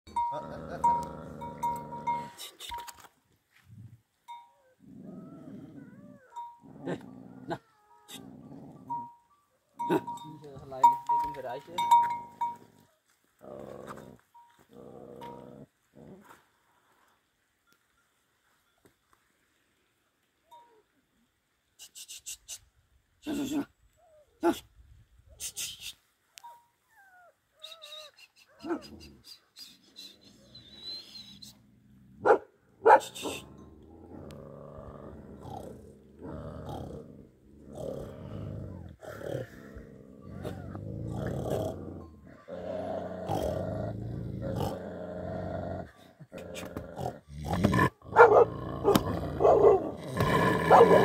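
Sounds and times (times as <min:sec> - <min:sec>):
dog growling: 0:00.1 - 0:02.4, 0:04.7 - 0:09.1, 0:33.2 - 0:51.0
dog whining: 0:04.4 - 0:09.0, 0:26.8 - 0:29.1, 0:40.2 - 0:40.8
dog barking: 0:32.2 - 0:33.4, 0:48.1 - 0:50.0, 0:50.7 - 0:51.0.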